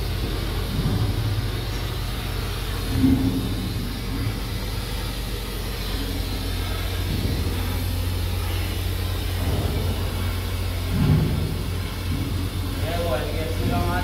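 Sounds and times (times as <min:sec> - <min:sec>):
welding arc hiss: 0:00.0 - 0:14.0
welding arc humming: 0:00.0 - 0:14.0.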